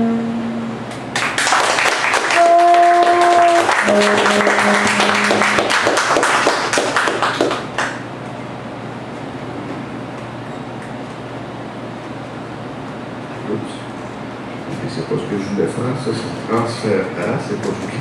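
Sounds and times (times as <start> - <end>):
saxophone long notes: 0.0 - 1.0, 2.0 - 6.6
low room hum: 0.0 - 18.0
audience applauding: 0.9 - 8.0.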